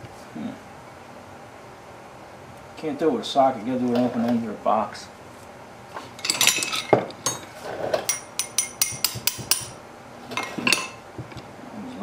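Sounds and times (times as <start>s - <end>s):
hammer tapping metal wrench: 8.1s - 9.8s.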